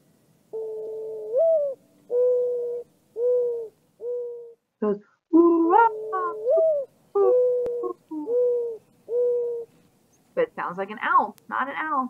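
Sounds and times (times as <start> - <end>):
dove cooing: 0.5 - 4.6, 5.4 - 9.8.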